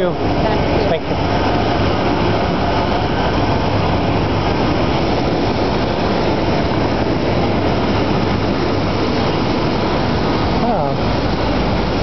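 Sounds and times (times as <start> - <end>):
jet aircraft noise: 0.0 - 12.0.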